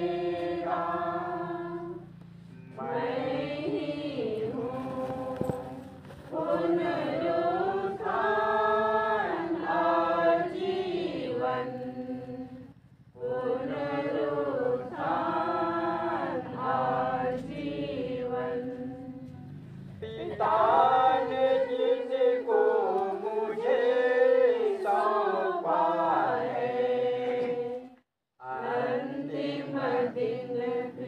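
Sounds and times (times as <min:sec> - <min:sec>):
group singing a hymn: 0:00.0 - 0:31.0.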